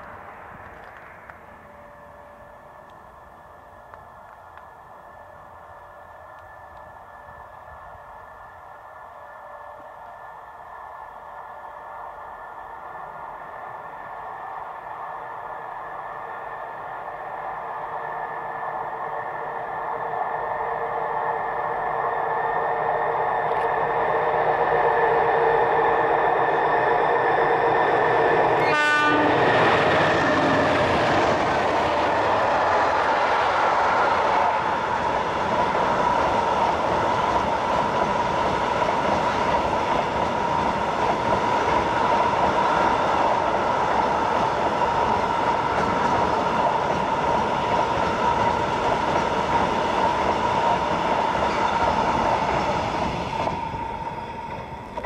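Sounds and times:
diesel locomotive engines: 0:00.0 - 0:55.0
train wagons ringing and clattering: 0:49.6 - 0:55.0.

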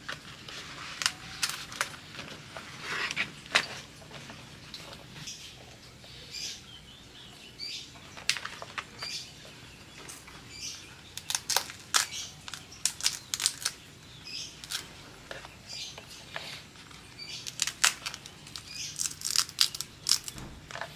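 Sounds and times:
wet leaf crackling being folded: 0:00.0 - 0:05.3, 0:11.1 - 0:13.8, 0:14.5 - 0:20.9.

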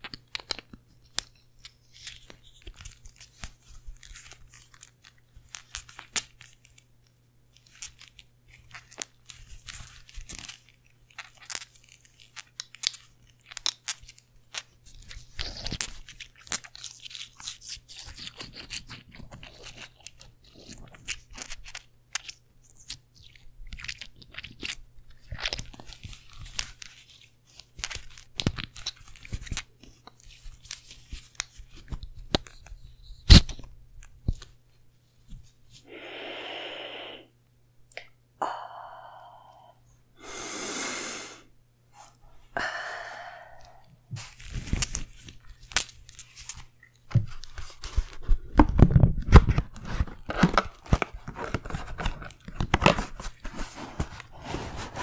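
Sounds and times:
scratchy handling rustles: 0:44.1 - 0:55.0.

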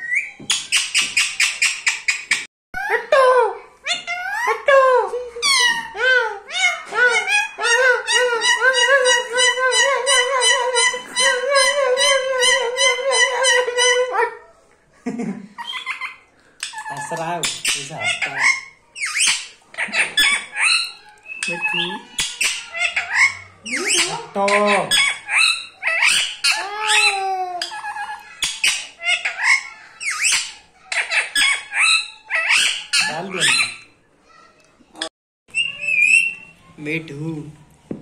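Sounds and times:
parakeet chattering and squawking: 0:00.0 - 0:02.5, 0:15.6 - 0:34.4, 0:35.0 - 0:36.6.

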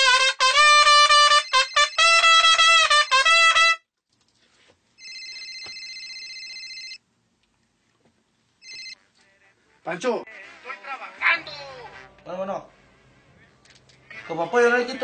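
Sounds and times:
trumpet playing: 0:00.0 - 0:03.9, 0:10.2 - 0:13.4.

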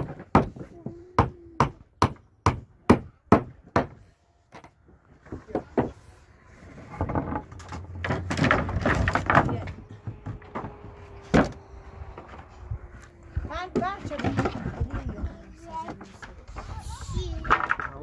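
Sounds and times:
hammer striking nail into wood: 0:01.2 - 0:04.0
rough scraping and clatter: 0:04.6 - 0:18.0.

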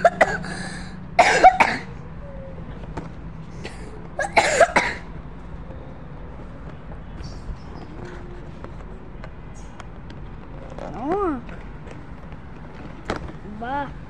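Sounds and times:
boy coughing: 0:00.0 - 0:00.6, 0:01.2 - 0:01.9, 0:03.6 - 0:05.1.

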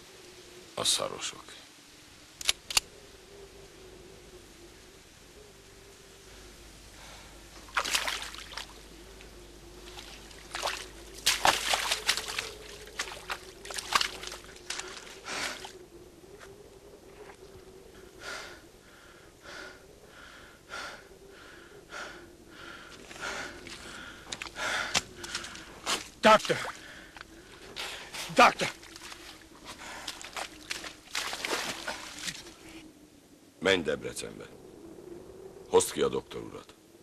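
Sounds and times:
faint steady hum: 0:00.0 - 0:37.0
water splashing and sloshing: 0:07.6 - 0:15.8, 0:22.9 - 0:32.8
man gasping breaths: 0:18.2 - 0:25.7.

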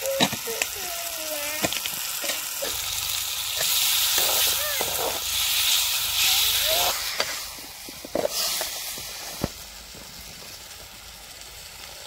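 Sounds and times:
curry sizzling in a pan: 0:00.0 - 0:12.0.

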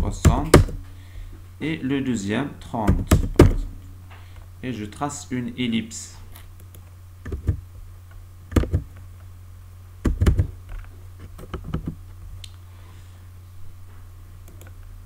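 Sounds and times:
steady low hum: 0:00.0 - 0:15.0
keyboard and mouse clicks: 0:06.6 - 0:07.6, 0:08.5 - 0:09.0, 0:10.0 - 0:10.5, 0:11.3 - 0:12.0.

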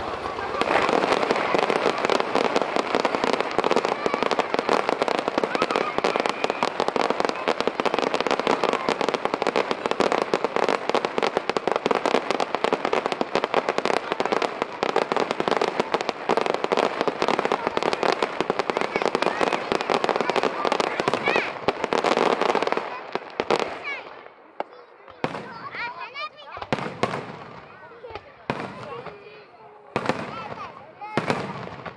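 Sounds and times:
fireworks popping and crackling: 0:00.0 - 0:31.9.

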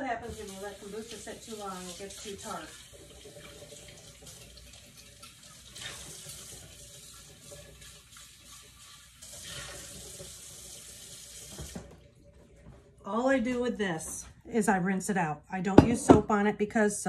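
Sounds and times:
water running from a tap: 0:00.0 - 0:13.0.

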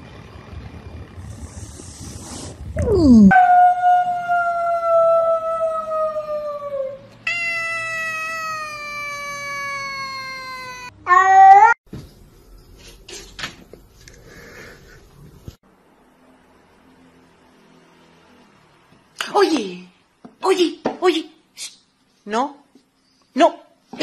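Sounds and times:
cat meowing: 0:07.3 - 0:11.8.

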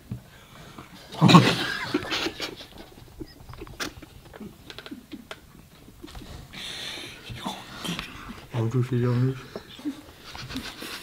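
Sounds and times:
men stifling laughter: 0:01.1 - 0:07.3, 0:09.5 - 0:11.0.

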